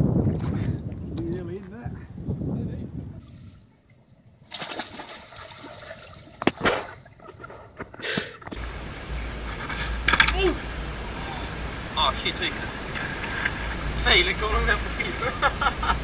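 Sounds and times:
wind on microphone: 0.0s - 3.6s
water splashing: 3.6s - 8.4s.

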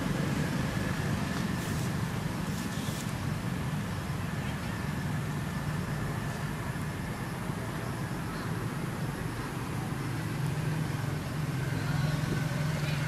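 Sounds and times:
low rumbling background noise: 0.0s - 13.0s
soft hissing: 0.8s - 3.6s.

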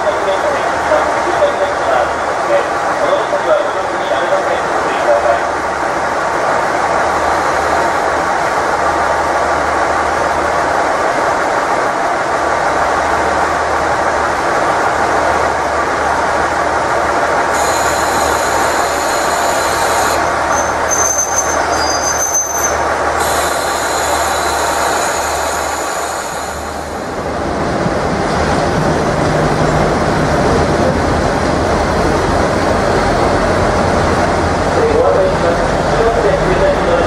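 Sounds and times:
train brakes squealing: 17.6s - 26.9s.

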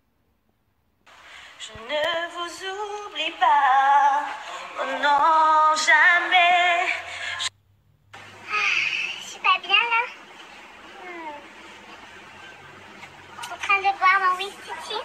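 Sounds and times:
woman singing unaccompanied: 1.5s - 7.5s.

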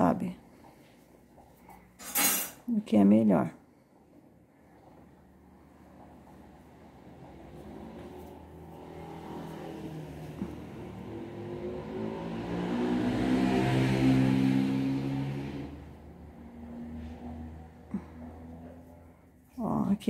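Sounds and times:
vehicle passing by: 3.7s - 20.0s.

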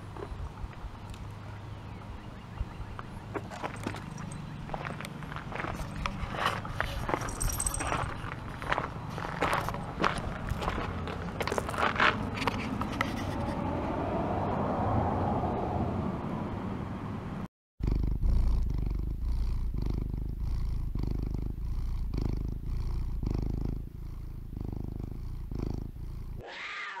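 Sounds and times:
steady outdoor noise: 0.0s - 17.5s
cat purring loudly: 17.8s - 26.7s.

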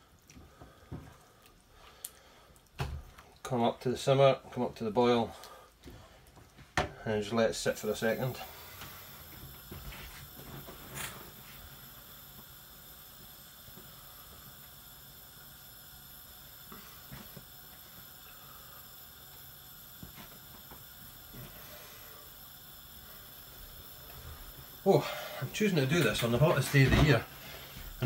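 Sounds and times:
sauce simmering hiss: 0.0s - 28.0s.

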